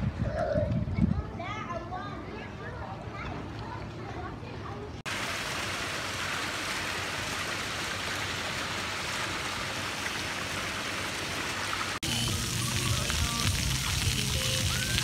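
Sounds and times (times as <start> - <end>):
fountain water splashing: 5.1 - 15.0.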